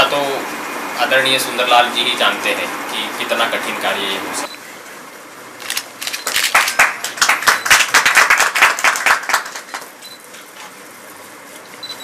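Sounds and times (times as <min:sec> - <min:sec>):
audience applauding: 0:06.2 - 0:10.0.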